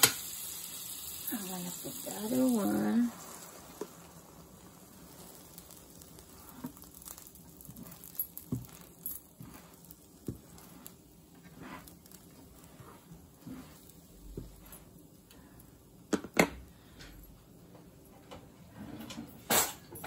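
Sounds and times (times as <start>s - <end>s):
sandwich frying in butter: 0.0s - 17.0s
spatula taps and scrapes: 5.6s - 15.0s.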